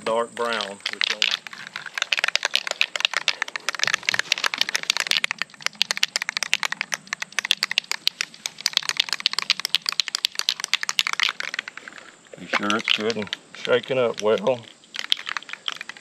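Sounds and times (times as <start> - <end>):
spray can ball rattling: 0.4 - 16.0.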